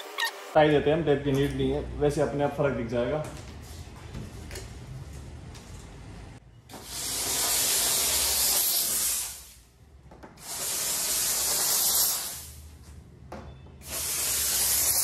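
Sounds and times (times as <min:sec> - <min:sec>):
steam gun hissing: 0:06.8 - 0:09.6, 0:10.4 - 0:12.6, 0:13.8 - 0:15.0.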